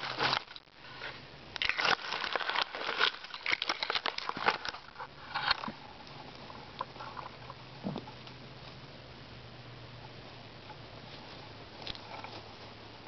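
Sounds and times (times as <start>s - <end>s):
dry leaves rustling and crackling: 0.0s - 5.5s, 11.0s - 13.0s.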